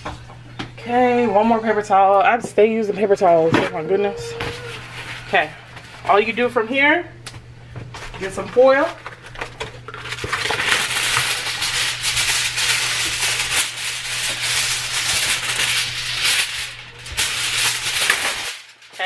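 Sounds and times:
aluminium foil crinkling: 8.0s - 19.0s.

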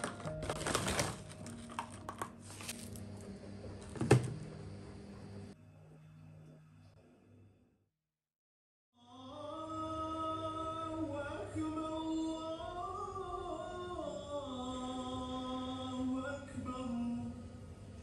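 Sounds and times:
man singing: 9.0s - 17.4s.

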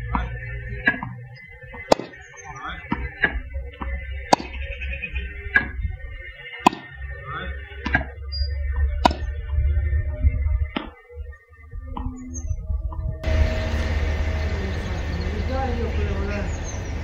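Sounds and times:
wind rumbling on microphone: 0.0s - 17.0s
tennis ball pops: 0.1s - 2.2s, 2.9s - 4.6s, 6.6s - 6.9s, 7.8s - 8.1s, 9.0s - 9.3s, 10.7s - 11.0s.

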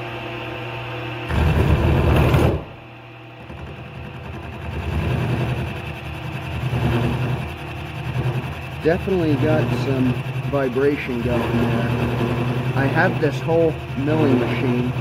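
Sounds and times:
milling machine cutting metal: 3.4s - 15.0s.

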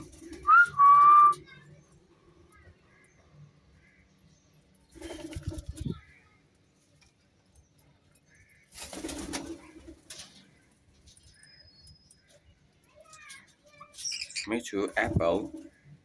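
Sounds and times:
parakeet wings flapping: 4.9s - 5.9s, 8.7s - 10.4s
faint bird chirps: 10.4s - 14.6s.

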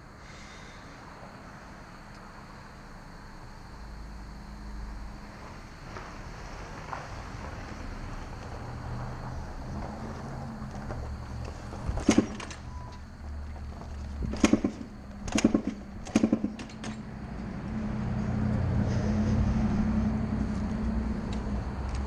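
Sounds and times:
low vehicle rumble: 0.0s - 22.0s
engine sputtering: 11.0s - 17.4s.

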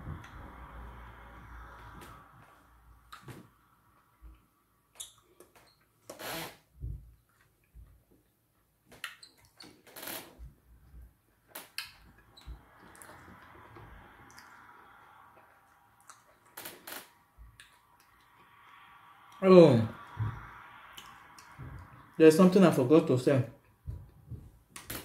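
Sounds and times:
wet mouth clicks and smacks: 8.9s - 9.6s, 11.6s - 12.0s, 12.8s - 13.5s, 14.1s - 16.6s, 17.5s - 19.4s, 20.9s - 22.1s.

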